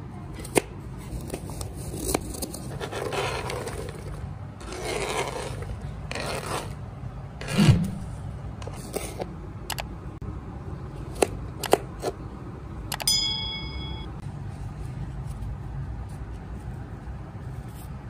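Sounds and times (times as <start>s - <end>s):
knife scraping cutting board: 1.2s - 6.8s, 7.4s - 8.0s.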